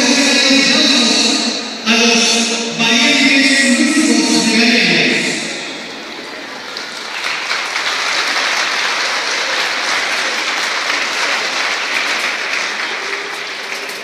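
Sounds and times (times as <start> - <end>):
crowd applauding: 5.6 - 14.0.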